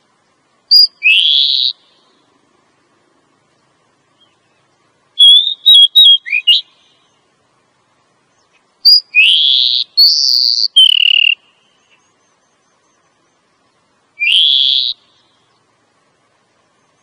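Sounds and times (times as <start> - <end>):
bird whistled calls: 0.7 - 2.1, 5.2 - 7.2, 8.4 - 13.4, 14.2 - 15.6.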